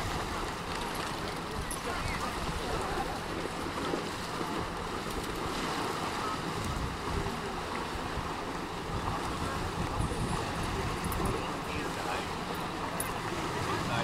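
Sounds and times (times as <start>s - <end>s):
river water: 0.0s - 14.0s
wind rumbling on microphone: 3.8s - 14.0s.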